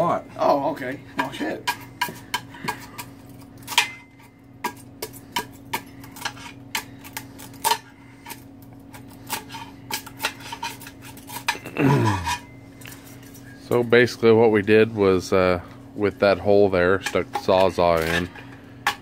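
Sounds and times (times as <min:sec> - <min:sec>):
steady low hum: 0:00.0 - 0:19.0
metal tool clinking and scraping: 0:09.3 - 0:14.0.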